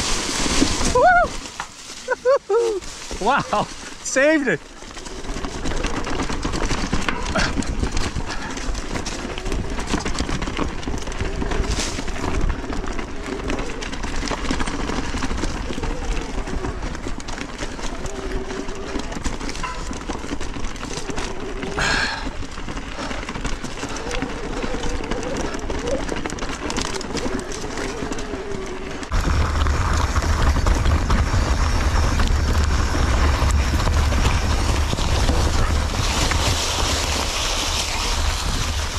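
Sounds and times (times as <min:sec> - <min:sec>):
bike clattering and rattling: 0:00.0 - 0:38.9
tyres rolling over dirt: 0:00.0 - 0:38.9
wind rumbling on microphone: 0:04.8 - 0:38.9.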